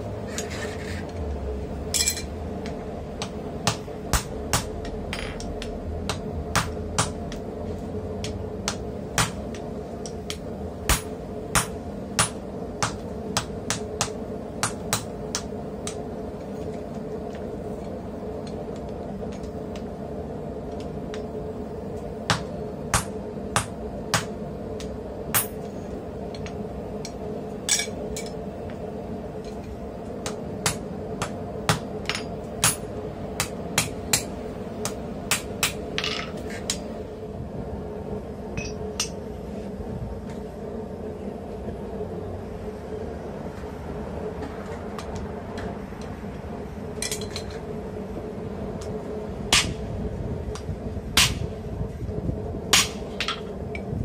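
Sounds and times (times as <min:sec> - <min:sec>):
steady hum: 0:00.0 - 0:54.0
hammer striking hot steel: 0:01.9 - 0:07.4, 0:08.2 - 0:16.0, 0:22.2 - 0:25.7, 0:30.2 - 0:36.8, 0:38.6 - 0:39.2, 0:49.5 - 0:49.8, 0:50.5 - 0:51.5, 0:52.7 - 0:53.4.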